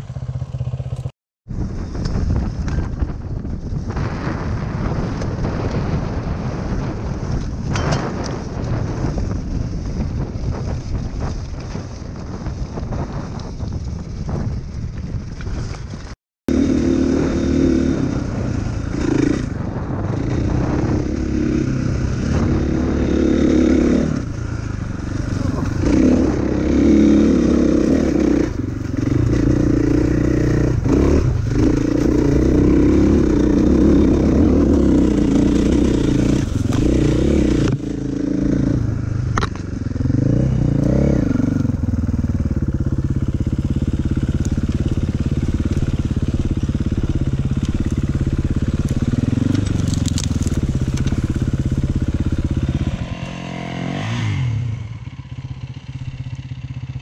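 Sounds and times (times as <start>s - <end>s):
dirt bike engine revving: 16.5s - 57.0s.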